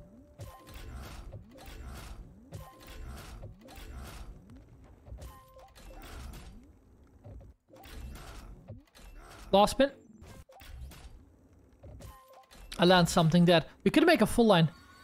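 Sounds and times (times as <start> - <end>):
slot machine clunks and whirs: 0.0 - 6.7, 7.7 - 11.2.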